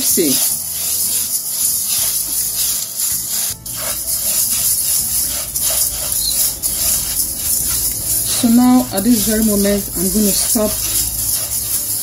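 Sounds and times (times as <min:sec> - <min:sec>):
rice scraping in a dry pan: 0:00.0 - 0:12.0.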